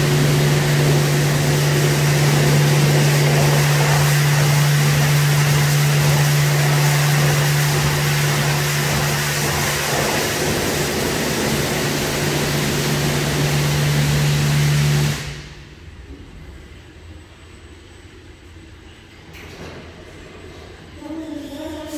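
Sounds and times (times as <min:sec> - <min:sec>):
water spraying: 0:00.0 - 0:15.6
car wash machine hum: 0:00.0 - 0:19.0.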